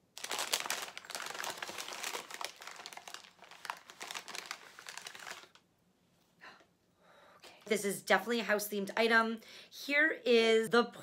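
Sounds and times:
wrapping paper crinkling: 0:00.0 - 0:05.6.

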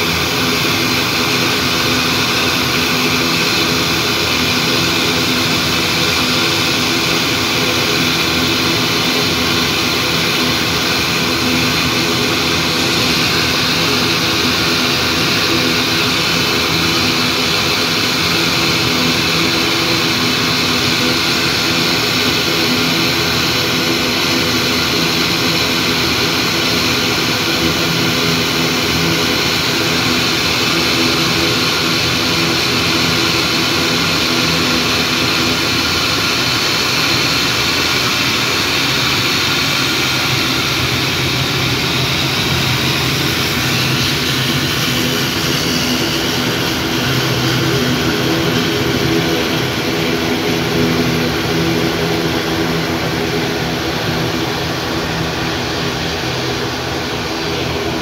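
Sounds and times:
high turbine whine: 0:00.0 - 0:58.0
propeller drone: 0:00.0 - 0:58.0.

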